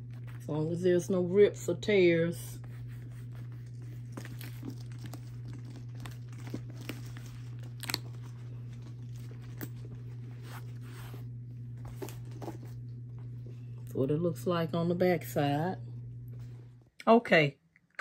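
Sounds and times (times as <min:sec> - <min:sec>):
steady low hum: 0:00.0 - 0:18.0
leather bag crinkling and rustling: 0:02.7 - 0:13.6.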